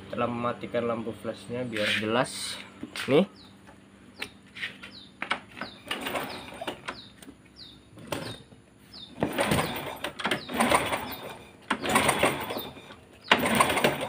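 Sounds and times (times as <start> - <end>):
small bird chirping: 2.9 - 13.4
motorcycle engine cranking: 4.9 - 14.0.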